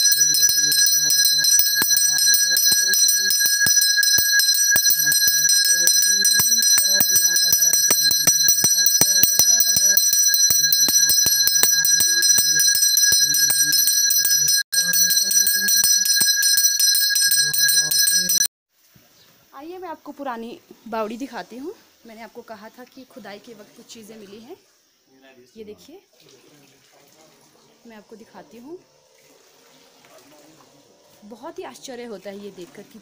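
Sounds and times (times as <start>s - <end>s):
hand bell ringing: 0.0s - 18.5s.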